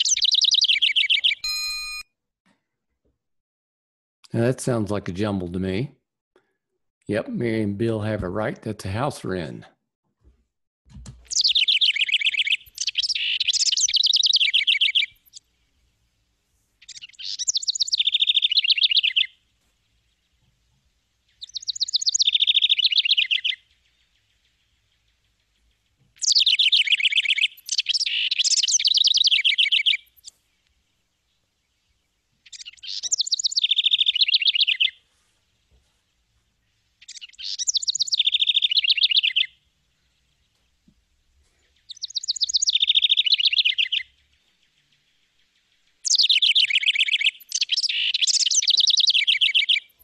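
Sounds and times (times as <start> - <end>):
wren singing trills: 0.0 - 1.5, 11.3 - 15.4, 16.8 - 19.4, 21.3 - 35.0, 37.0 - 40.6, 41.7 - 50.0.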